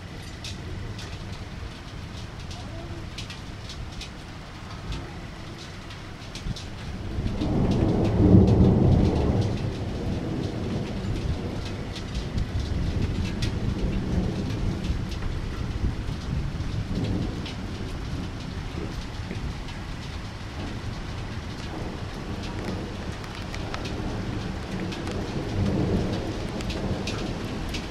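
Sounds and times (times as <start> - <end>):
rain falling: 0.0 - 27.9
thunder rumbling: 0.0 - 27.9
drop ticks: 0.2 - 15.3.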